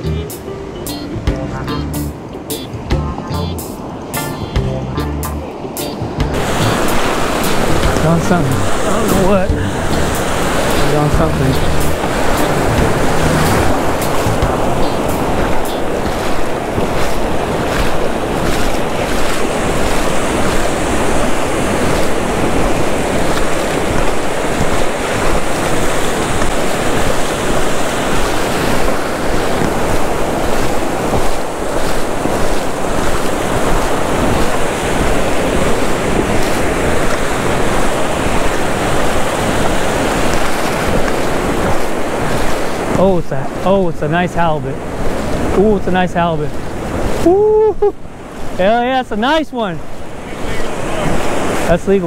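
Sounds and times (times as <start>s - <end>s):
wind buffeting microphone: 0.0s - 48.8s
ocean surf breaking: 0.0s - 52.0s.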